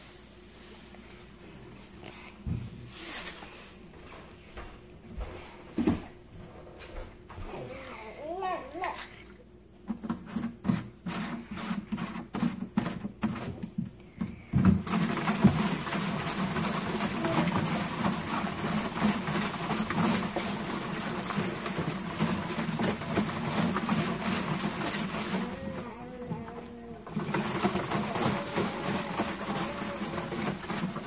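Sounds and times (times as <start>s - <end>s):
water sloshing in plastic jar: 8.7s - 31.0s.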